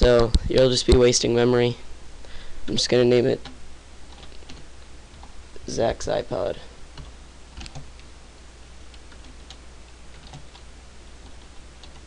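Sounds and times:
faint low hum: 0:00.0 - 0:12.0
keyboard keystrokes: 0:07.0 - 0:08.1, 0:08.9 - 0:12.0.

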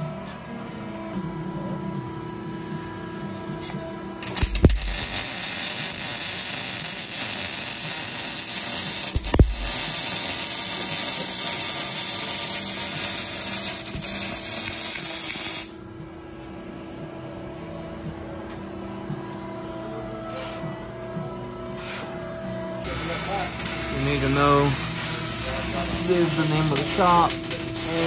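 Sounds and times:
workshop hum: 0:00.0 - 0:28.0
welding arc crackling hiss: 0:04.2 - 0:15.8, 0:22.8 - 0:28.0.

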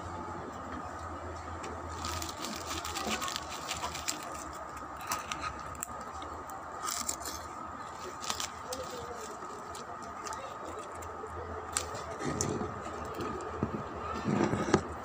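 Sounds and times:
pork rinds crunching: 0:01.9 - 0:11.1.

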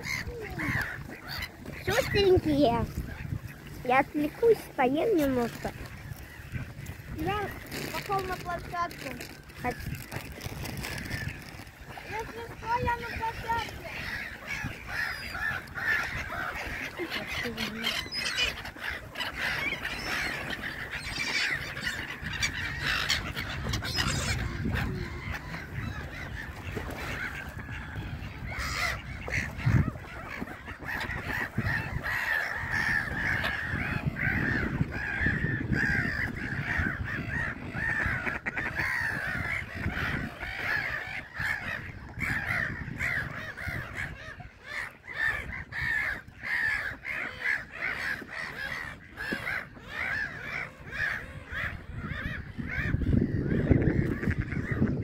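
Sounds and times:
gulls calling: 0:00.0 - 0:55.0.

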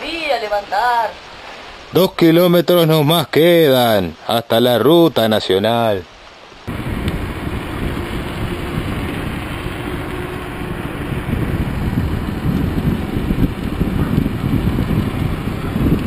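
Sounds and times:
wind rushing over microphone: 0:06.6 - 0:16.0.

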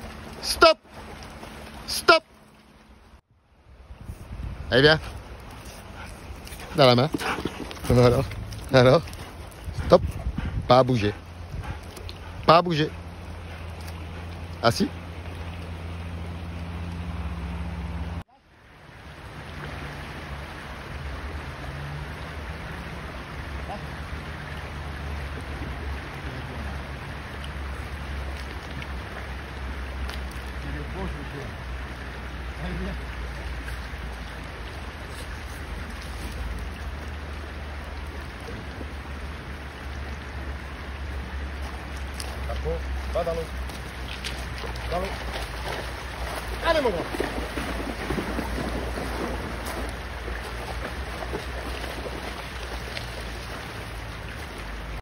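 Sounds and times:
wind rumbling on microphone: 0:03.4 - 0:13.2, 0:42.9 - 0:55.0
river rushing: 0:10.7 - 0:55.0.

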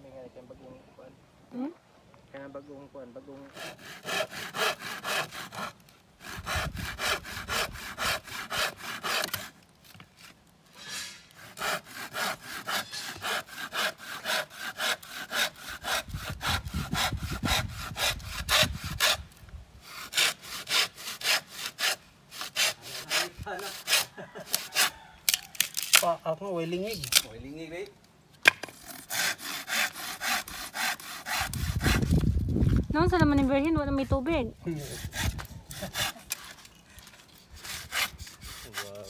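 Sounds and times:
hand saw cutting wood: 0:03.4 - 0:09.6, 0:10.2 - 0:26.1, 0:28.5 - 0:32.4, 0:34.7 - 0:39.0.

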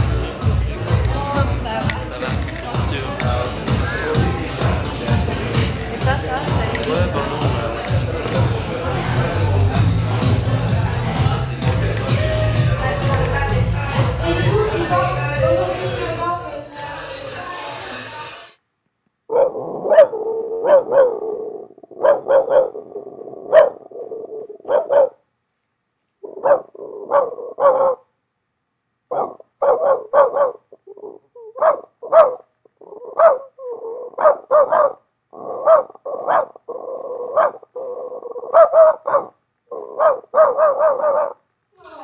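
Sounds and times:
dog barking: 0:19.3 - 0:21.4, 0:22.0 - 0:22.8, 0:23.5 - 0:23.8, 0:24.6 - 0:25.2, 0:26.2 - 0:28.1, 0:29.1 - 0:30.7, 0:31.5 - 0:36.6, 0:37.2 - 0:41.4.

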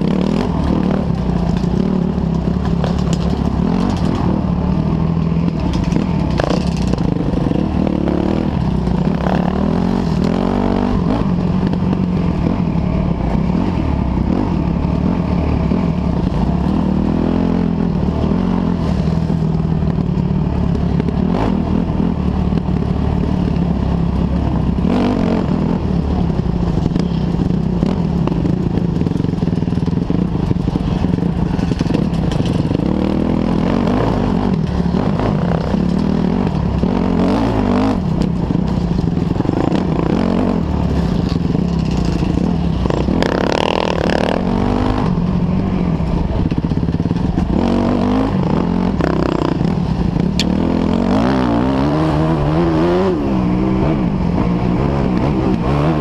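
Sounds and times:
dirt bike engine revving: 0:00.0 - 0:24.0, 0:24.6 - 0:56.0.

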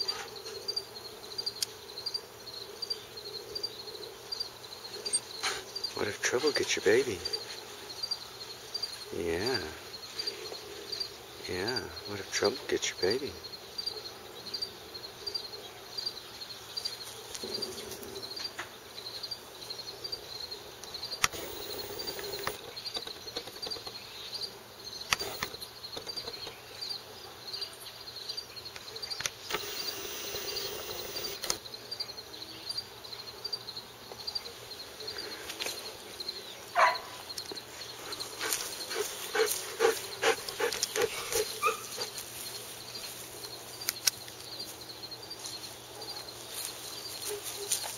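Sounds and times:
insect chirping: 0:00.0 - 0:47.7
outdoor ambience: 0:00.0 - 0:47.9
rustles on dry grass: 0:37.6 - 0:47.9.

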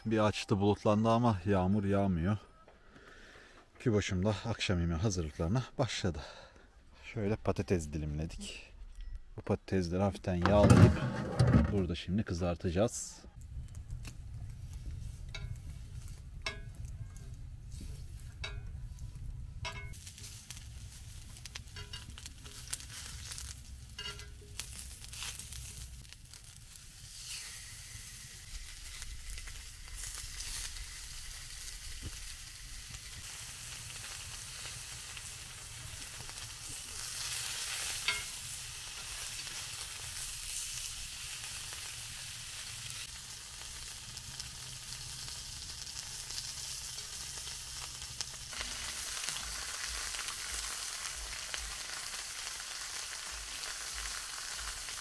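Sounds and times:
food sizzling in oil on grill pan: 0:14.6 - 0:55.0.

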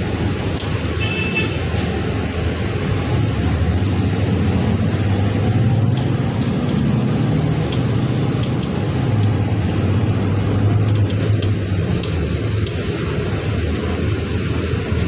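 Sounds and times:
bus engine hum: 0:00.0 - 0:15.0
road noise: 0:00.0 - 0:15.0
clicks and rattles in cabin: 0:07.7 - 0:13.1.

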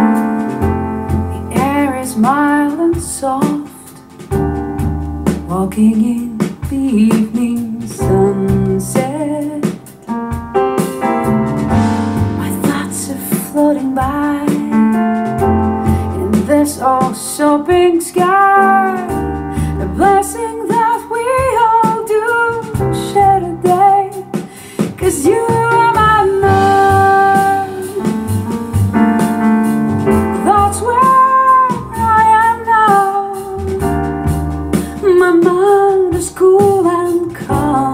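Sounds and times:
piano accompaniment: 0:00.0 - 0:37.9
woman singing: 0:01.3 - 0:04.2, 0:05.4 - 0:10.0, 0:12.2 - 0:28.4, 0:30.4 - 0:34.0, 0:34.8 - 0:37.9.

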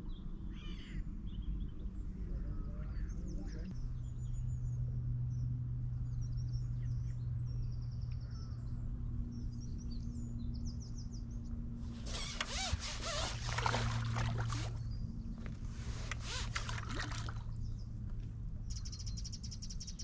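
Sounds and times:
steady low hum: 0:00.0 - 0:19.6
small birds chirping: 0:01.2 - 0:20.0
water splashing and sloshing: 0:11.9 - 0:17.7.

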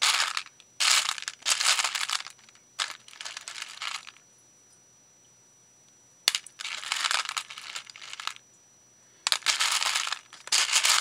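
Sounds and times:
crinkling rustling of materials: 0:00.0 - 0:04.2, 0:06.3 - 0:08.4, 0:09.3 - 0:11.0.

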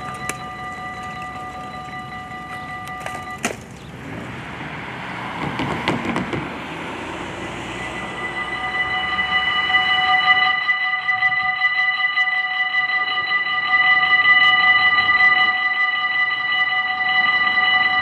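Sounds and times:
level crossing warning bell: 0:00.0 - 0:04.1, 0:06.7 - 0:18.0
car driving past: 0:03.5 - 0:10.3.

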